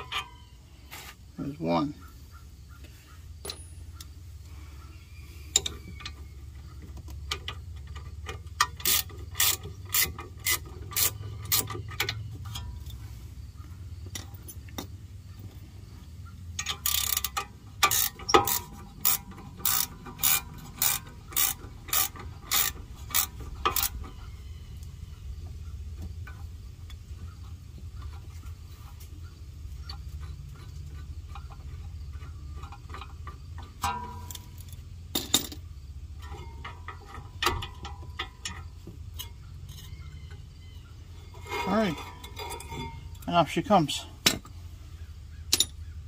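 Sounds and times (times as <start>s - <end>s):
ratchet wrench clicking: 7.2s - 13.0s, 16.6s - 24.2s.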